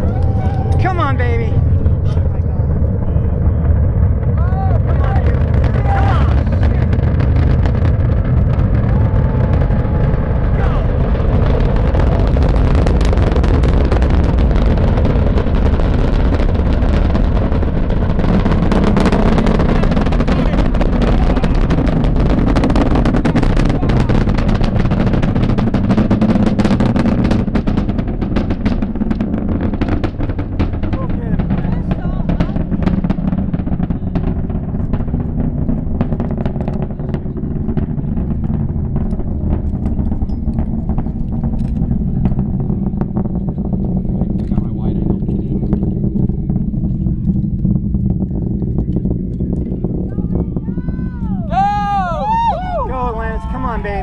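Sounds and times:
sharp irregular crackles: 0.0 - 51.4
distant rocket launch rumble: 0.0 - 54.0.

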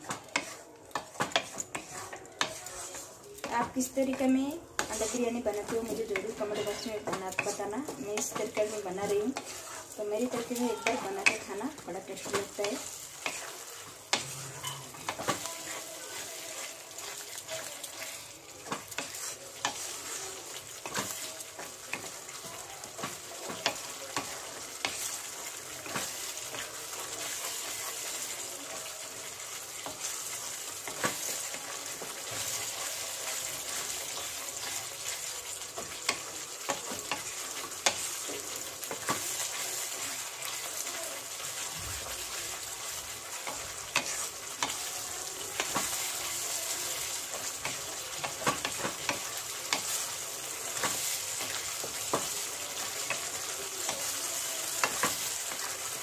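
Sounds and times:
sauce sizzling in a frying pan: 0.0 - 56.0
spatula scraping and tapping pan: 0.0 - 56.0.

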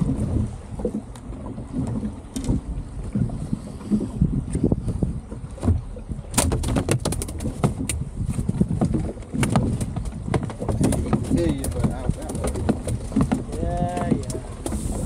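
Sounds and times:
water slapping boat hull: 0.0 - 15.0
wind buffeting microphone: 0.0 - 15.0
sharp clicks and knocks: 5.6 - 15.0.

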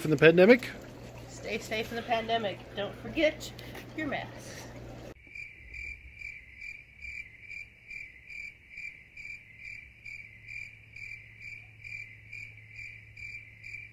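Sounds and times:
cricket chirping: 5.2 - 13.9.

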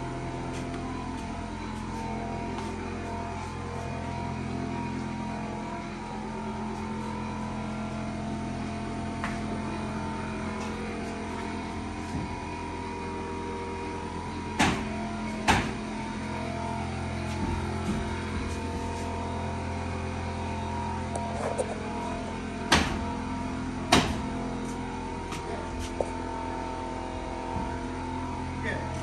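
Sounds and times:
steady mechanical hum: 0.0 - 29.0
sharp knocks: 14.6 - 15.8, 23.9 - 24.3.

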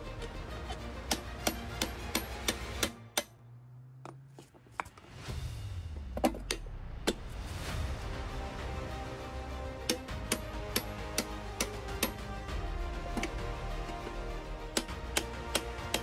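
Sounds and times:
hammer striking metal chisel: 0.2 - 3.4, 6.2 - 7.2, 9.9 - 12.2, 14.7 - 16.0
sharp metal knocks: 1.1 - 3.4, 9.9 - 12.2.

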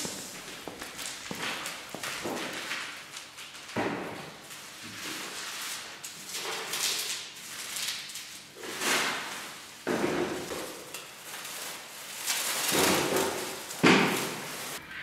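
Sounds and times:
plastic wrapping crinkling: 0.0 - 14.8.

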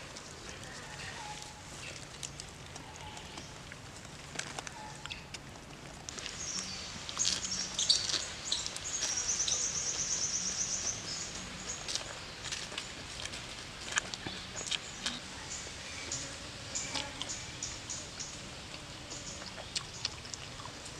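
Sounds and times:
person chewing: 1.8 - 9.2, 11.8 - 15.2, 19.4 - 20.9
forest birds calling: 6.1 - 13.1, 14.1 - 20.2.

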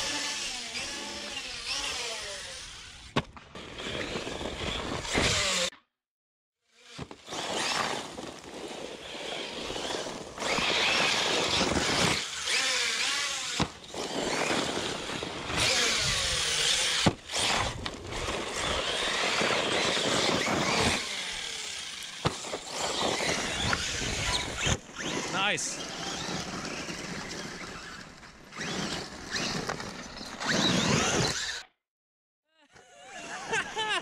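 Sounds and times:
electric motor whining: 9.0 - 29.7.

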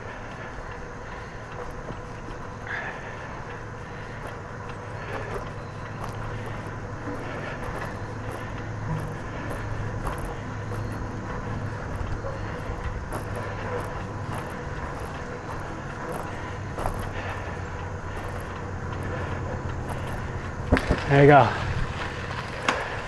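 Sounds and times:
bicycle tyres rolling on concrete: 0.0 - 23.0.

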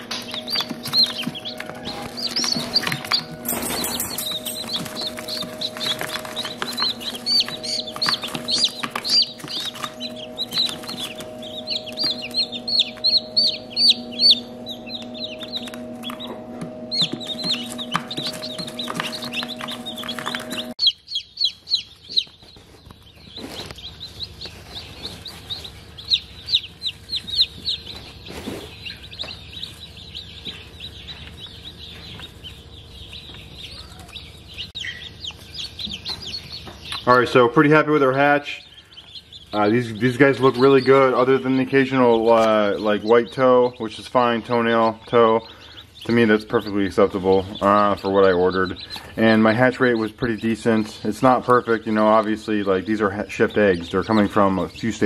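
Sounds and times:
steady hum: 0.0 - 22.1
chicks peeping: 0.0 - 55.0.

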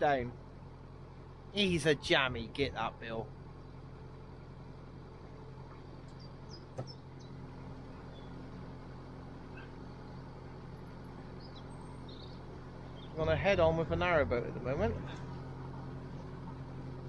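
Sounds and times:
diesel engine humming: 0.0 - 17.0
faint bird chirps: 5.7 - 8.4, 9.5 - 10.4, 11.3 - 13.2.

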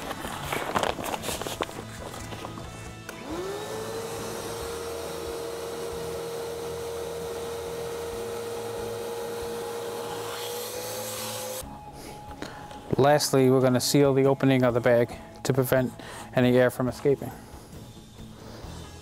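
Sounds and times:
vacuum motor whine: 3.0 - 11.6.

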